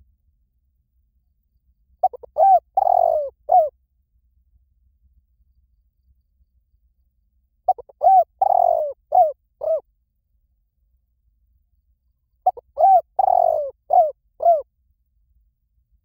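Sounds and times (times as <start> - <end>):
dove cooing: 2.0 - 3.8, 7.7 - 9.8, 12.4 - 14.7.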